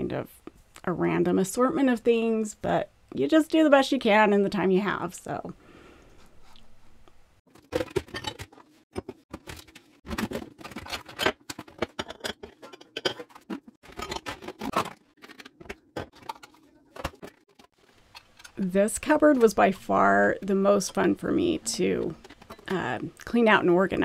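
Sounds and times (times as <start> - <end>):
plastic containers clattering: 7.5 - 19.6.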